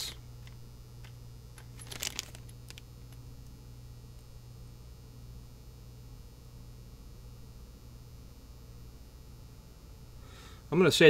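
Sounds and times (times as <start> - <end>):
low mains hum: 0.0 - 11.0
plastic bag crinkling: 1.6 - 2.9.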